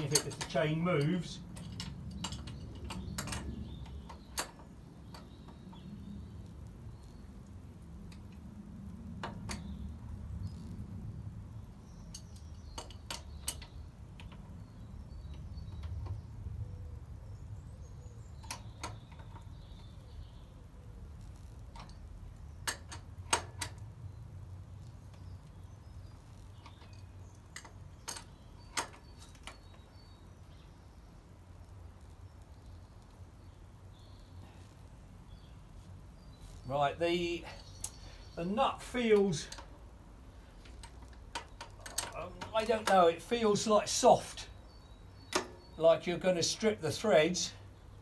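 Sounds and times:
spanner metal clicks: 0.0s - 16.6s, 18.3s - 30.1s, 37.6s - 45.8s.

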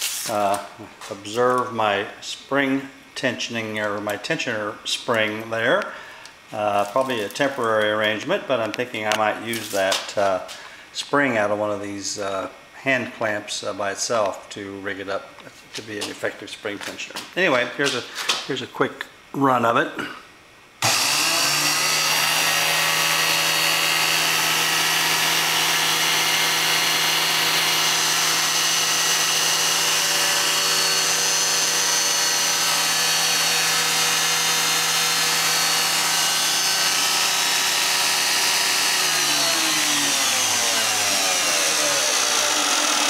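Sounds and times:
belt grinder humming: 20.8s - 43.0s.

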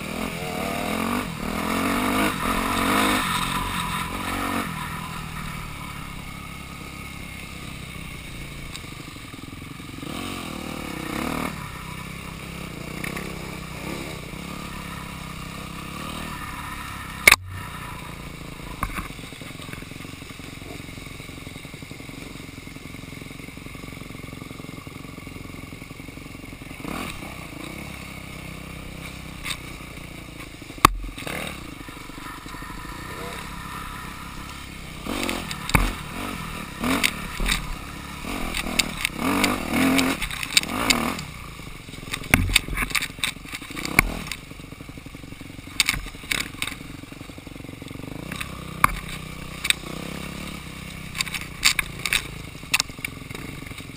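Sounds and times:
dirt bike engine at low revs: 0.0s - 53.9s
sharp knocks: 42.3s - 42.8s.

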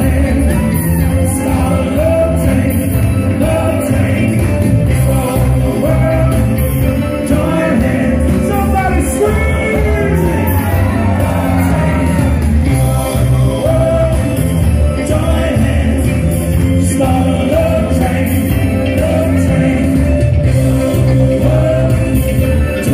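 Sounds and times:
crowd shouting and whooping: 0.0s - 3.0s, 5.4s - 16.4s
live band music: 0.0s - 22.9s
man singing into microphone: 0.0s - 22.9s.

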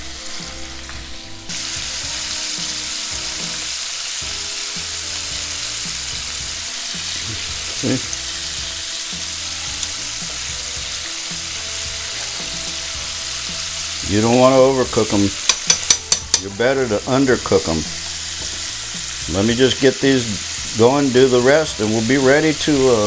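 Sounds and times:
shrimp deep-frying in oil: 0.0s - 23.0s
metal tongs in oil: 7.0s - 10.5s, 14.1s - 23.0s.

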